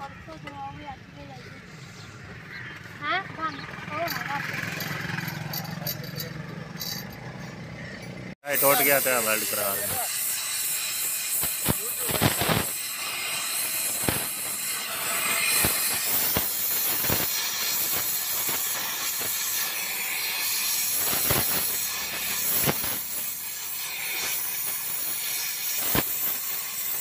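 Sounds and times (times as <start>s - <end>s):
gas welding torch hissing: 8.4s - 27.0s.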